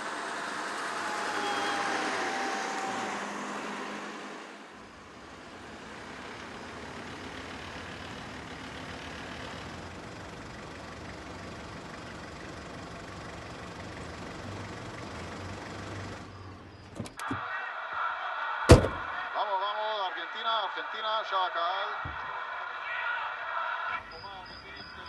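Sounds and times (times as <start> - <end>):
car engine idling: 2.9 - 17.4, 18.7 - 19.1
sharp clicks: 16.9 - 17.4.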